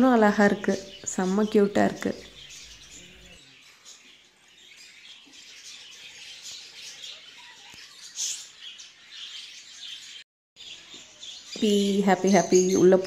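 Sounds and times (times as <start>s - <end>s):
caged birds chirping: 0.0s - 13.0s.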